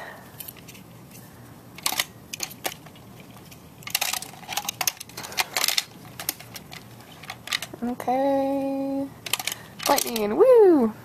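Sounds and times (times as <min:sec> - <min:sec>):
plastic toy clicks and rattles: 0:01.8 - 0:08.0, 0:09.2 - 0:10.4.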